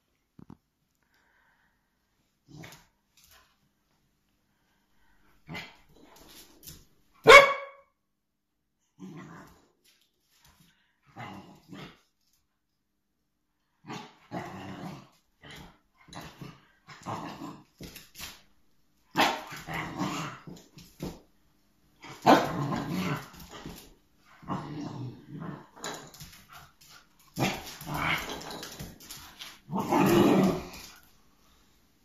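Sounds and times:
puppy growling and barking: 0:19.1 - 0:21.1, 0:22.0 - 0:26.3, 0:27.3 - 0:29.0, 0:29.6 - 0:31.0.

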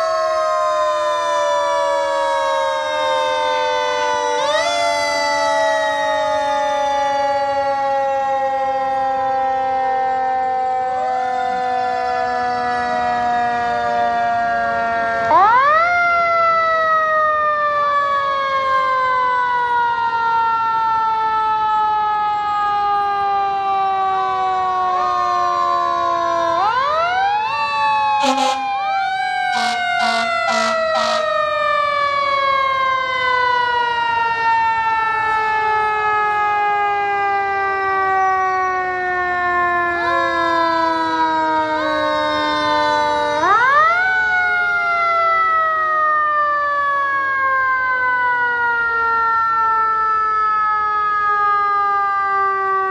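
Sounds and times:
fire engine sirens wailing: 0:00.0 - 0:52.9
short horn blasts: 0:28.2 - 0:28.8, 0:29.5 - 0:31.3.

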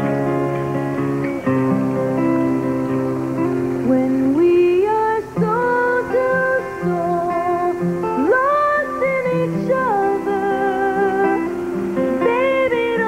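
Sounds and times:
acoustic guitar: 0:00.0 - 0:13.0
woman singing: 0:03.8 - 0:13.0.

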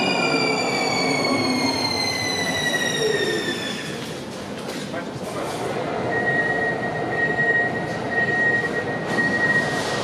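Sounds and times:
train equipment high whine: 0:00.0 - 0:04.6.

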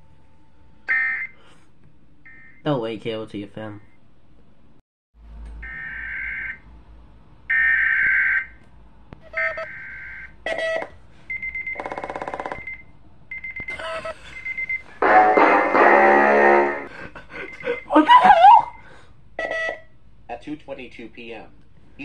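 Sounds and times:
tone beeps: 0:14.4 - 0:15.7.

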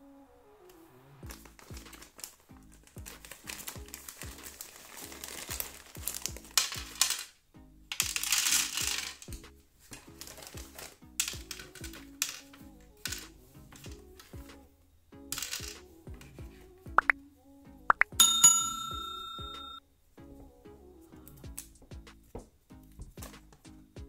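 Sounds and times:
background music with steady beat: 0:00.8 - 0:24.0
plastic bag crinkling: 0:01.3 - 0:07.3
plastic pegs clicking and rattling: 0:05.6 - 0:09.4, 0:10.0 - 0:14.3, 0:15.3 - 0:15.8.

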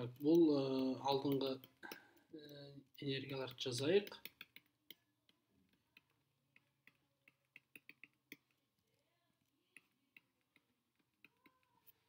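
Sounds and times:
stylus tapping on tablet screen: 0:03.3 - 0:09.0, 0:09.6 - 0:12.0.

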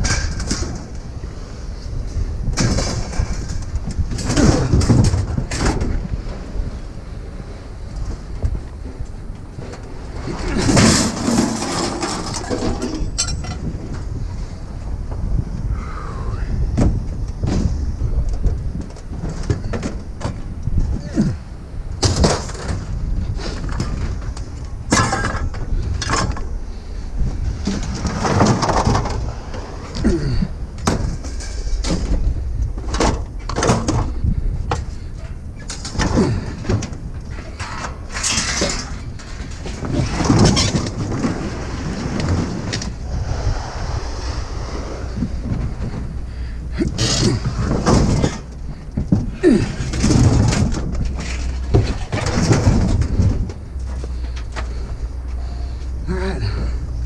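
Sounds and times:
steady low rumble: 0:00.0 - 0:57.0
scrap metal clanking: 0:10.2 - 0:14.2, 0:30.8 - 0:34.2, 0:34.8 - 0:43.2, 0:44.1 - 0:54.8.

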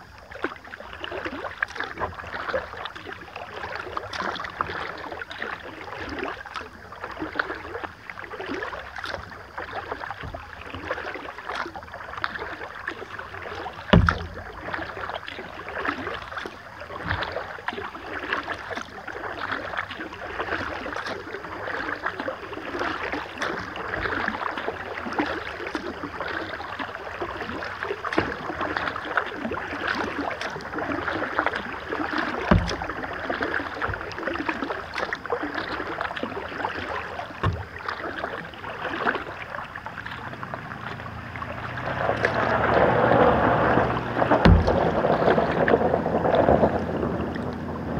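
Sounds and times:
water splashing off paddles: 0:00.0 - 0:47.9
dull thumps: 0:13.9 - 0:14.6, 0:32.4 - 0:33.1, 0:37.4 - 0:37.8, 0:43.6 - 0:47.2.

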